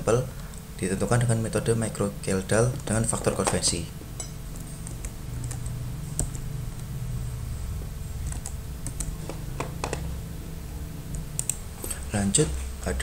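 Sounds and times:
steady low hum: 0.0 - 13.0
computer keys clicking: 8.2 - 10.0, 11.1 - 11.6.

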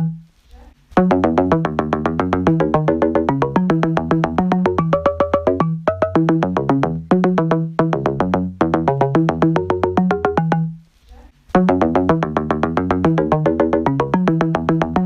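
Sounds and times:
synthesizer music with bass line: 1.0 - 10.8, 11.5 - 15.0.

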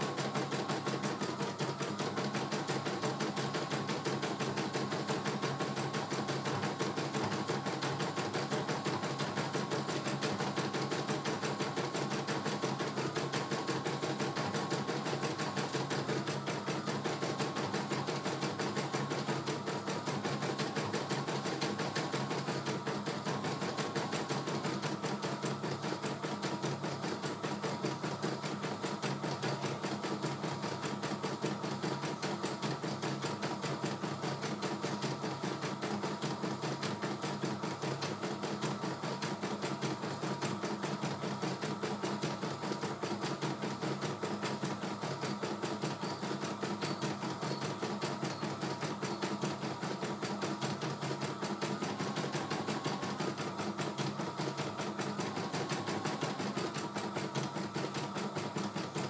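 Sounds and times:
embroidery machine stitching: 0.0 - 59.0.

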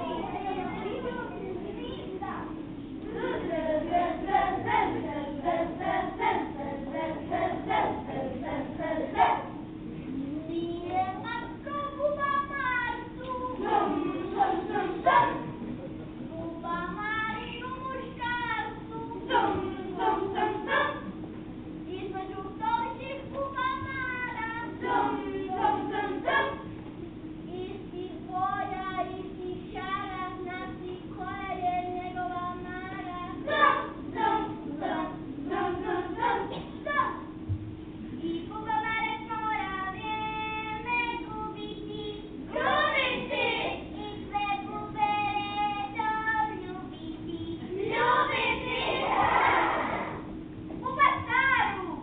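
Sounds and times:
children singing rhythmic syllables: 3.1 - 9.6, 42.5 - 43.9, 47.8 - 50.2
children singing: 42.6 - 43.8, 47.8 - 50.2.

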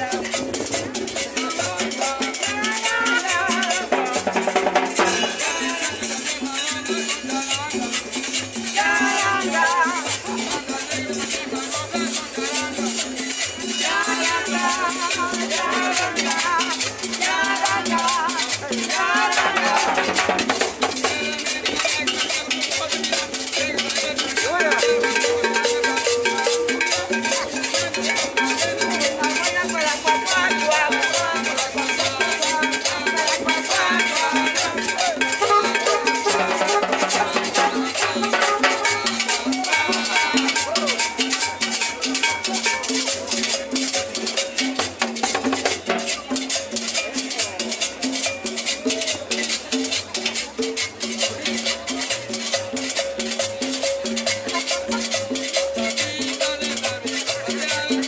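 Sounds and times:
latin dance band playing: 0.0 - 58.0
timbales and percussion beat: 0.0 - 58.0.

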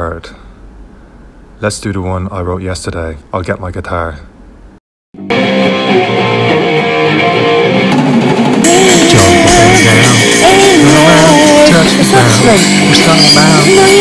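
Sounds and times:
rock band playing: 5.2 - 14.0
wavering lead melody: 5.2 - 14.0
cymbals: 7.3 - 14.0.

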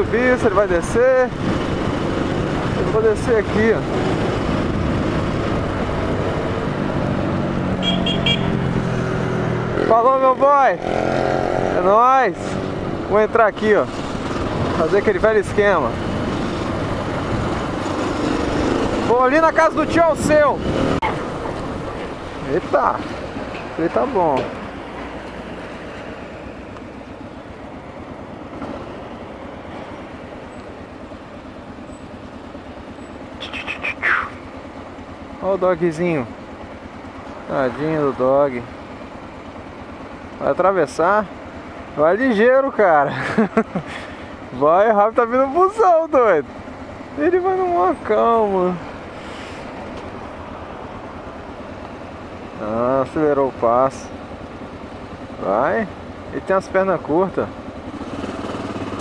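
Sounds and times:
motorcycle engine running: 0.0 - 59.0
road and wind noise: 0.0 - 59.0
horn beeps: 7.8 - 8.6.

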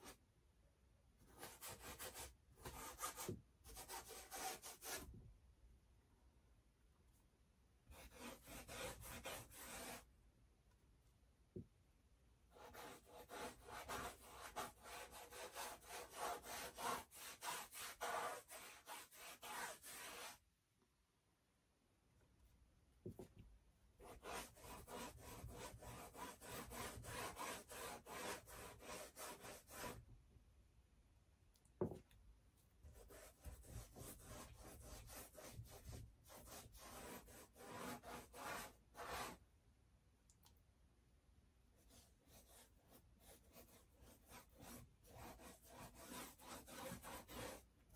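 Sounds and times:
brush scrubbing paint on canvas: 12.5 - 20.4, 24.0 - 30.0, 32.8 - 39.4, 41.8 - 47.9.

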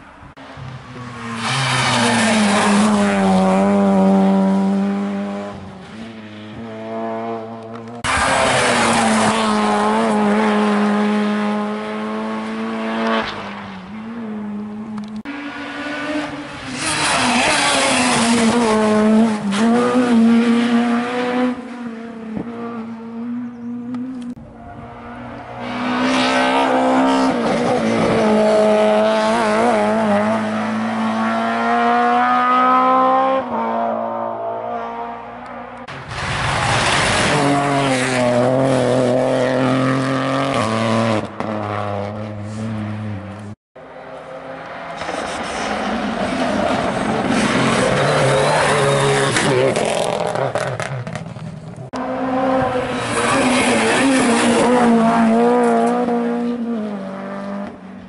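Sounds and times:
rally car engines revving: 0.4 - 58.0.

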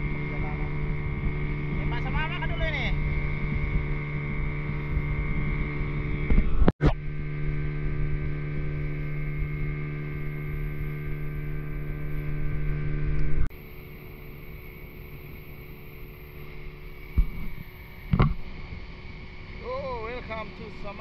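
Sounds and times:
boat engine humming: 0.0 - 21.0.

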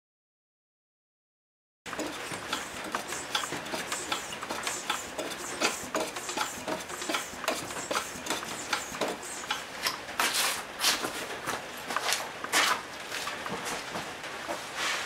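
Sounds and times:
propeller light clicks and ticks: 1.9 - 10.0.

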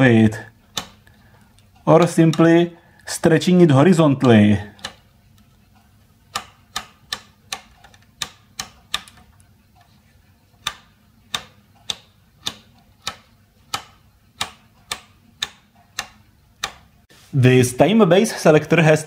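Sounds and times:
rotary switch detent clicks: 0.7 - 3.2, 4.0 - 9.9, 10.6 - 17.0.

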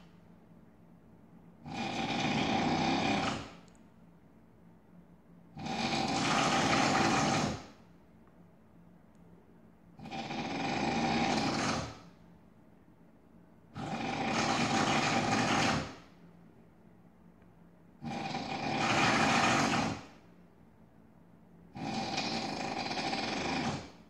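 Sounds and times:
man snoring loudly: 1.6 - 3.6, 5.6 - 7.7, 10.0 - 12.0, 13.8 - 16.0, 18.0 - 20.1, 21.8 - 24.0.

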